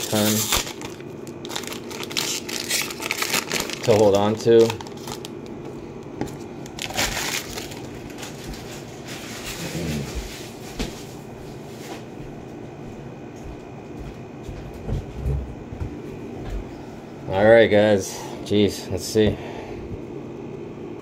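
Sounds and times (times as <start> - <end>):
plastic wrappers crinkling: 0.0 - 5.6, 6.6 - 10.1.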